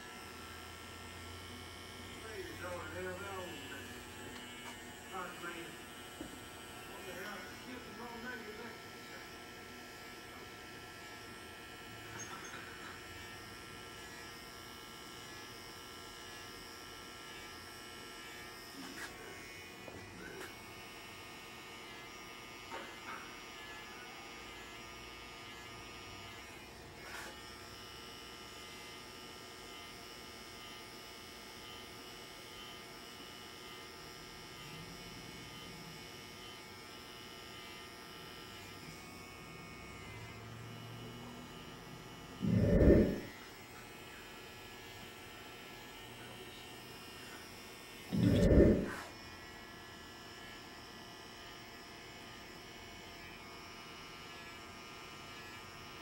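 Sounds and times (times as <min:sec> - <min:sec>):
electric hair clippers buzzing: 0:00.0 - 0:56.0.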